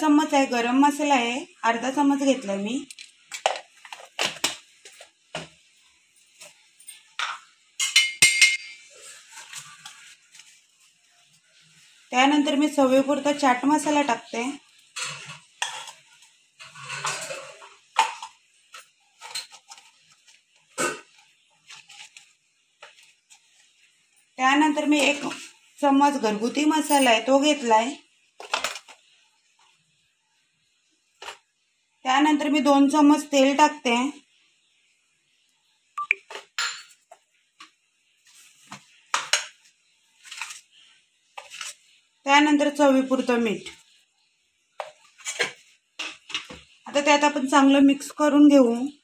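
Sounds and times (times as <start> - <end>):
steel kitchenware clinking: 6.4 - 10.0, 14.9 - 20.0, 36.3 - 37.0.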